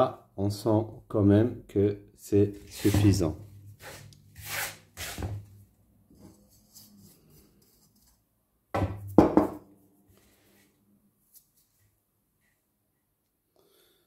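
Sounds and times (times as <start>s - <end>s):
hands rubbing semolina: 6.3s - 8.3s.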